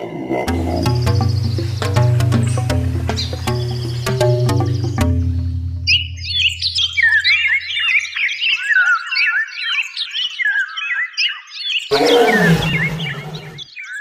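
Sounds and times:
lion roaring: 0.0 - 1.1, 11.9 - 13.7
jungle birds chirping: 0.0 - 14.0.

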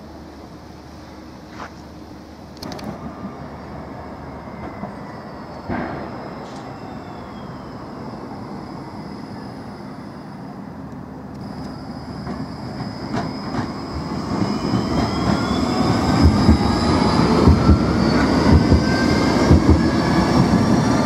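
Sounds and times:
tram rolling on rails: 0.0 - 21.0.

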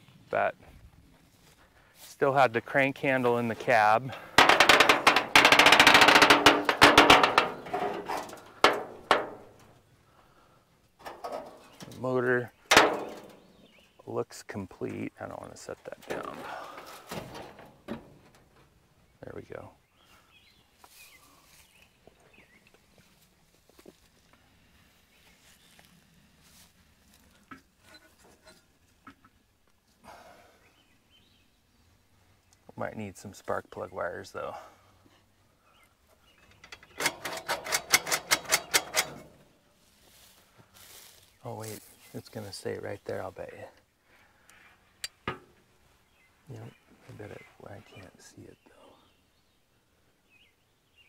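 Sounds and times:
sheet metal panel rattling: 4.0 - 9.7, 11.0 - 12.0, 12.7 - 13.6, 16.0 - 18.7, 36.6 - 39.4
sharp metal knocks: 4.1 - 9.7, 12.7 - 13.6, 36.6 - 39.4, 45.0 - 45.6
faint clicks and rustles of wires: 20.8 - 30.0.

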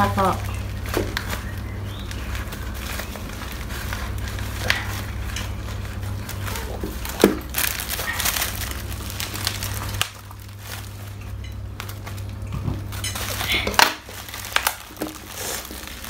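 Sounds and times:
plastic wrapping crinkling: 0.0 - 16.0
scissors cutting plastic: 13.0 - 16.0.

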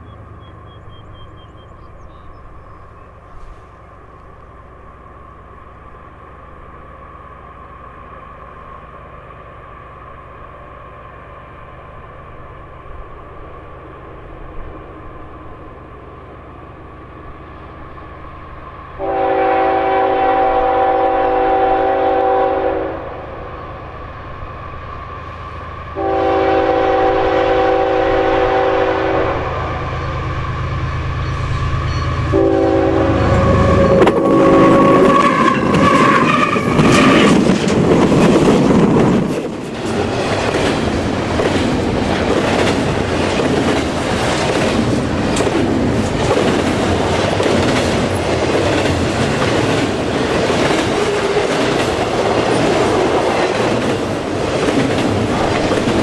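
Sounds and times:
locomotive engine rumbling: 0.0 - 56.0
locomotive horn blasts: 19.0 - 23.4, 26.0 - 30.1, 31.3 - 36.8
train cars clattering over rails: 33.8 - 56.0.

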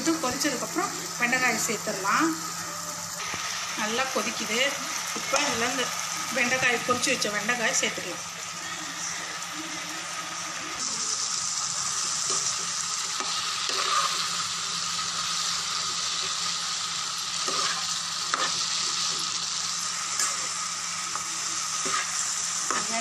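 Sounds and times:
food sizzling in a pan: 0.0 - 23.0
spatula scraping and knocking pan: 13.2 - 14.2, 17.4 - 18.6, 21.2 - 23.0.

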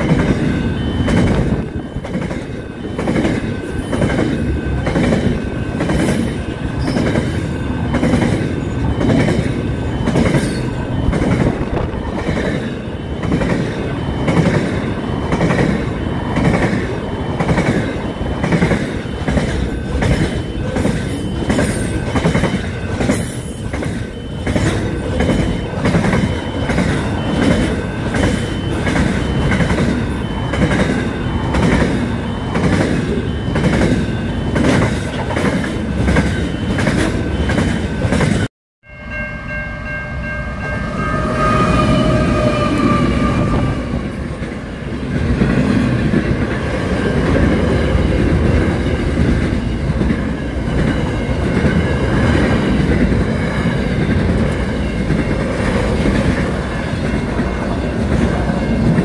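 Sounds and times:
multi-note train horn: 40.4 - 44.1.

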